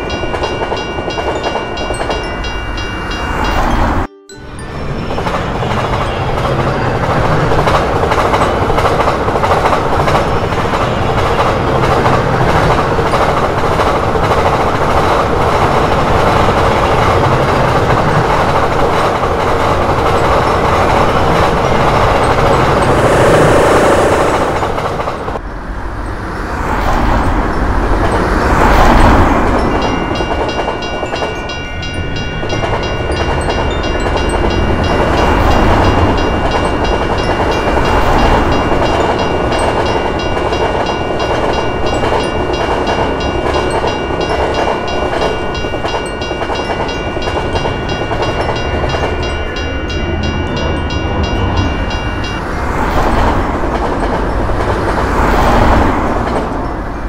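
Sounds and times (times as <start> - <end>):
railroad crossing bell ringing: 0.0 - 57.0
train rumbling and clacking: 0.0 - 57.0
road vehicles passing: 2.6 - 45.2, 48.4 - 57.0.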